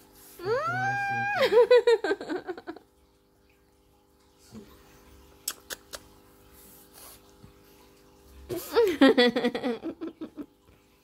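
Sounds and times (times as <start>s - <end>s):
faint steady hum: 0.0s - 11.0s
baby lip smacks: 5.4s - 6.1s.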